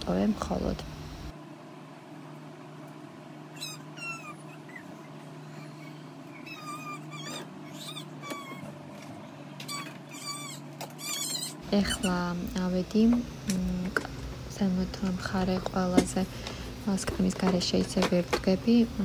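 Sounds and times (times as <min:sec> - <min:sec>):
steady low hum: 0:00.0 - 0:19.0
animal squeaky calls: 0:03.5 - 0:08.8, 0:09.6 - 0:12.2.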